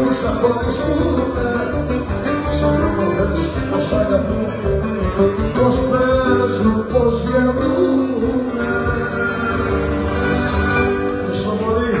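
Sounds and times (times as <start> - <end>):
man singing: 0.0 - 12.0
string accompaniment: 0.0 - 12.0.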